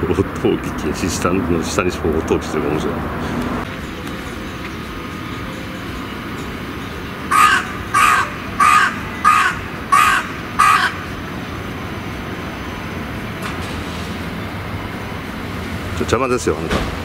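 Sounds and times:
crow cawing: 0:07.3 - 0:11.1.

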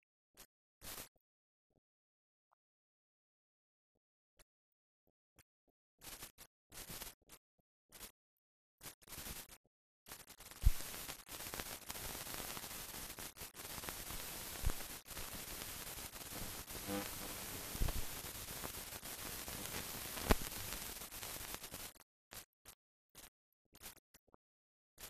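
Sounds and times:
film soundtrack hiss: 0:10.1 - 0:22.0
clicks and pops: 0:16.4 - 0:22.4.

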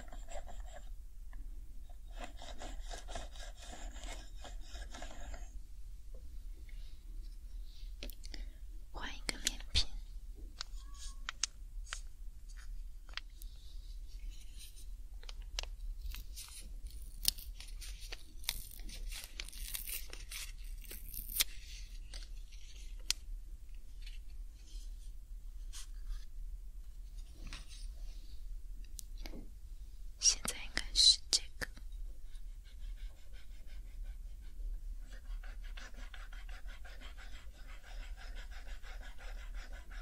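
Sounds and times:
packet crinkling: 0:15.2 - 0:21.6
packet tearing: 0:16.0 - 0:21.6.

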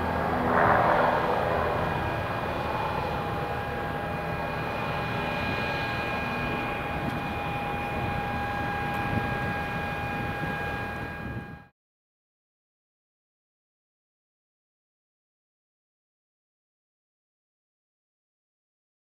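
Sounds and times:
propeller aircraft engines droning: 0:00.0 - 0:11.7.

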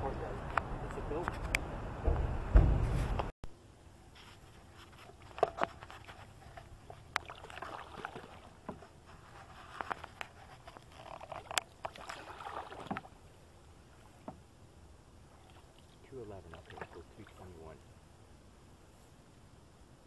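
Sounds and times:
paddle swishing through water: 0:04.1 - 0:14.5, 0:15.2 - 0:17.8.

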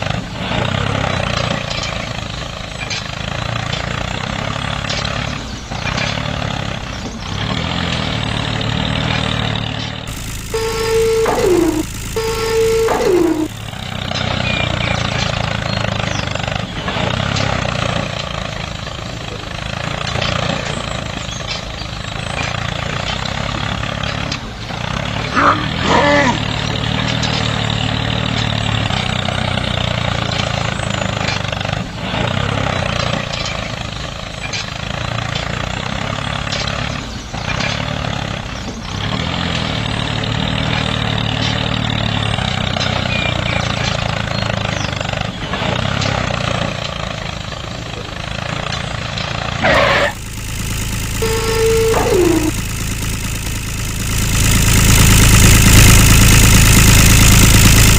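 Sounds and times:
small model tractor motor running: 0:00.0 - 0:34.0, 0:39.0 - 0:46.9, 0:48.2 - 0:57.9
rising squeal: 0:51.2 - 0:52.6.

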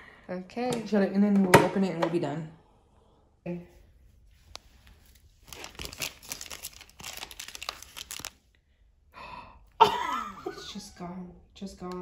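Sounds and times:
plastic wrapper crinkling: 0:04.5 - 0:08.6.

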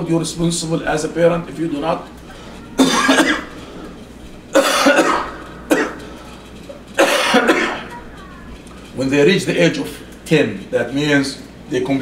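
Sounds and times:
man coughing: 0:02.8 - 0:03.6, 0:04.5 - 0:06.1, 0:07.0 - 0:07.9.

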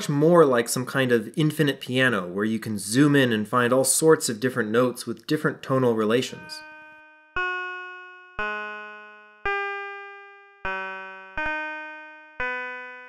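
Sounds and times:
synthesised chord notes: 0:06.3 - 0:13.0.

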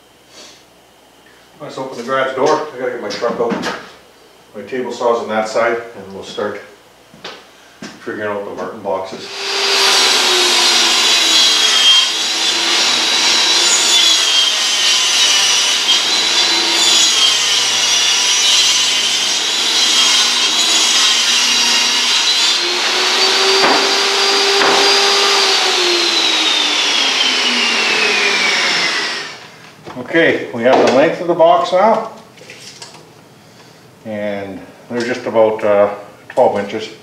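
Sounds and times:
saw blade spinning down: 0:09.2 - 0:29.5
table saw cutting plywood: 0:09.2 - 0:29.6
knocks: 0:23.6 - 0:23.9, 0:24.6 - 0:25.0.

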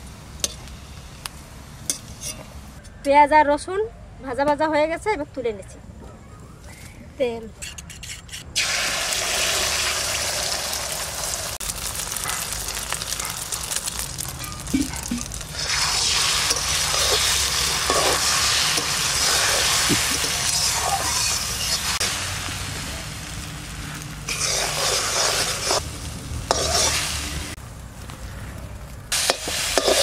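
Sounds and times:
metal spatula scraping pan: 0:07.6 - 0:08.5, 0:14.4 - 0:22.0, 0:24.3 - 0:25.8, 0:26.5 - 0:27.1, 0:29.2 - 0:30.0
egg sizzling in hot oil: 0:08.6 - 0:27.7, 0:29.1 - 0:30.0.

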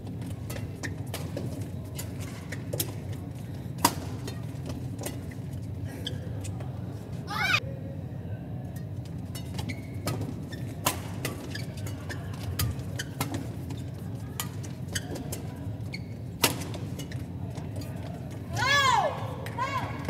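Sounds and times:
shoe squeaks on court: 0:00.5 - 0:03.2, 0:04.0 - 0:06.8, 0:08.8 - 0:18.1
rackets hitting shuttlecock: 0:09.4 - 0:13.6.

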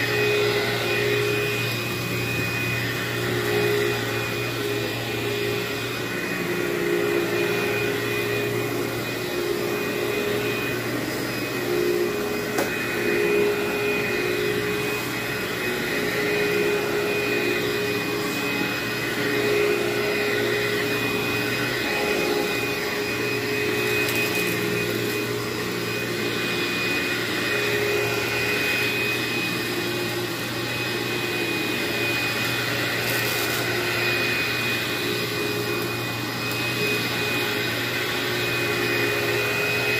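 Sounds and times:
vacuum cleaner running on carpet: 0:00.0 - 0:39.9.

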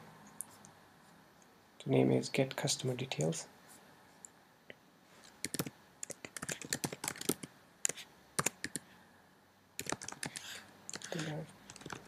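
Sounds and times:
computer keyboard typing: 0:05.4 - 0:08.8, 0:09.8 - 0:12.0.

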